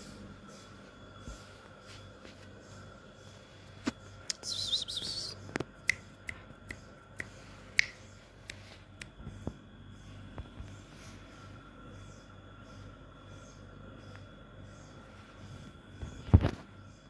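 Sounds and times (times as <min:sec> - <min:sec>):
sharp clicks or snaps: 0:05.8 - 0:09.2.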